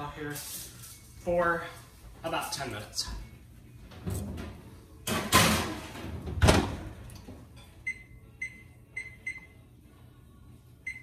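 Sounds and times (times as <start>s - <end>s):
oven door opening: 3.9s - 7.4s
oven door shutting with thud: 4.0s - 7.0s.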